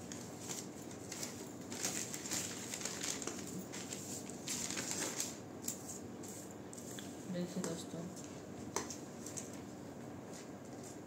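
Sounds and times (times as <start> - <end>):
newspaper rustling and crinkling: 0.0 - 5.4.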